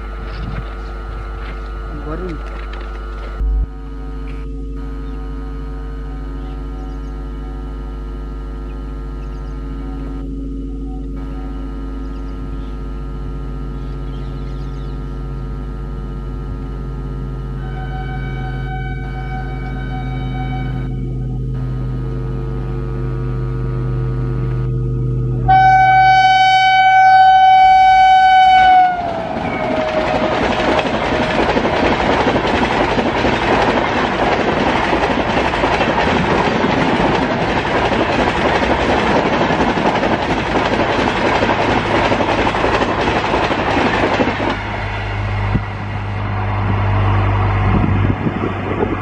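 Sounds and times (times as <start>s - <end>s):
electric locomotive humming: 0.0s - 49.0s
train horn blast: 16.4s - 31.6s
train coaches rumbling past: 25.4s - 49.0s
wheel clickety-clack: 29.3s - 44.6s.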